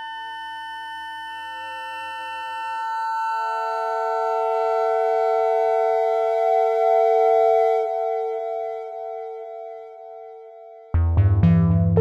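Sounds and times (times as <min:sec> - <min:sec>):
synthesizer holding tones: 0:11.0 - 0:12.0.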